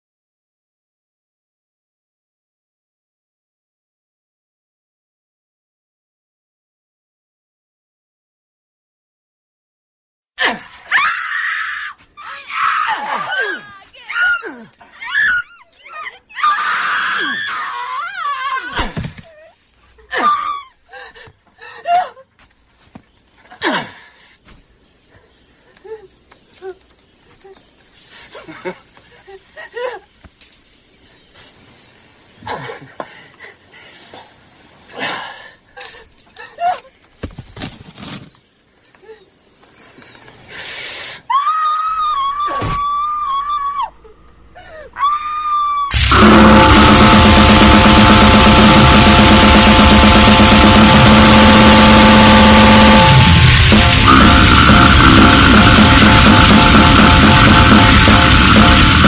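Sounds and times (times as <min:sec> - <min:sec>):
long high-pitched scream: 0:10.9 - 0:15.6, 0:16.3 - 0:18.8, 0:41.3 - 0:48.9
short bursts of noise: 0:45.9 - 0:59.0.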